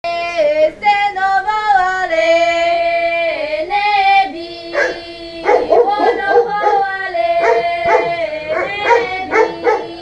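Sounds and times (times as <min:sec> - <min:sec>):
girls singing unaccompanied: 0:00.1 - 0:10.0
dog barking: 0:04.7 - 0:10.0.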